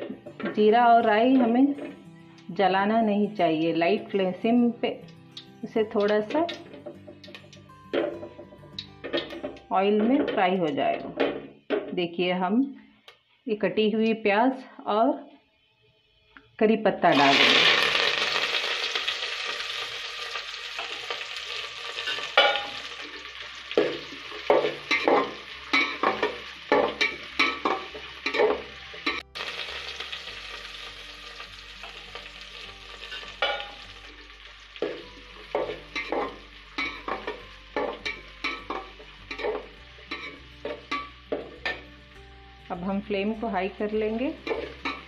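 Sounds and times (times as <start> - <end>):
onion sizzling in hot oil: 17.1 - 45.0
metal spatula scraping pot: 35.5 - 41.8, 44.4 - 45.0.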